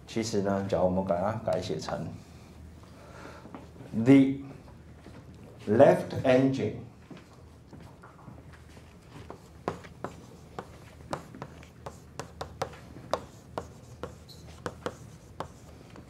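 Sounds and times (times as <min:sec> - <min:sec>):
chalk tapping on blackboard: 0:09.3 - 0:16.0.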